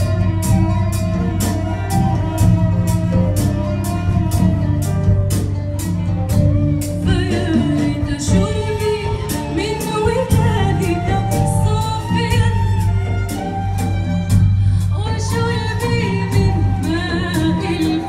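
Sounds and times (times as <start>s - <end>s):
bass: 0.0s - 18.0s
live band playing: 0.0s - 18.0s
woman singing: 6.8s - 13.4s, 14.6s - 18.0s.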